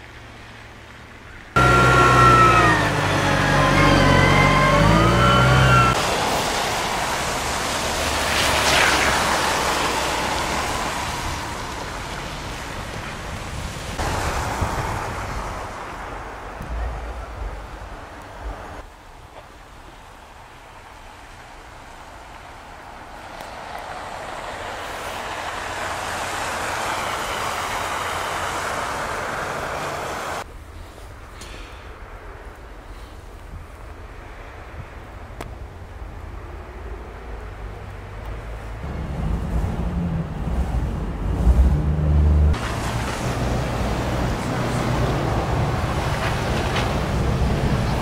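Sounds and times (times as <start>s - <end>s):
low traffic rumble: 0.0s - 48.0s
road noise: 0.0s - 48.0s
tyres hissing through slush: 1.6s - 12.6s.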